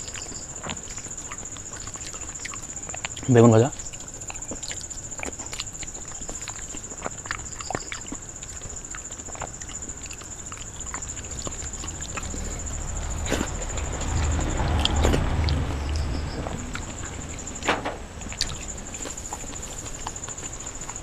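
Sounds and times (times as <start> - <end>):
chewing close up: 0.0 - 21.0
high-pitched whine: 11.1 - 20.0.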